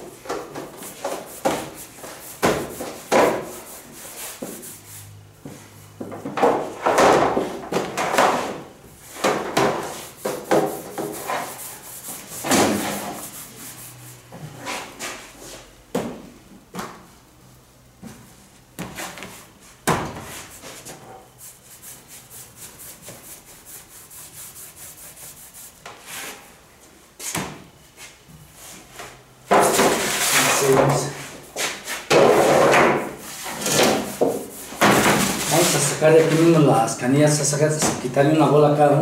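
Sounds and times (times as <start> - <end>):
baking trays scraping and clattering: 5.5 - 15.7, 28.0 - 38.0.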